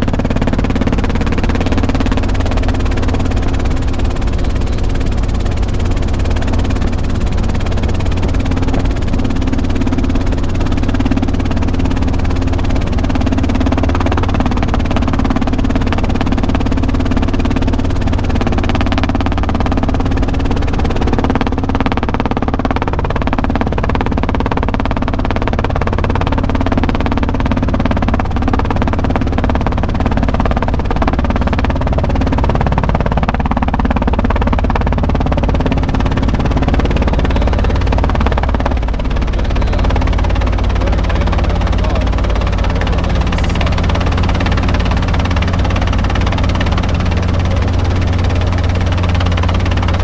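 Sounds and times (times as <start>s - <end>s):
helicopter engine and rotors droning: 0.0s - 50.0s.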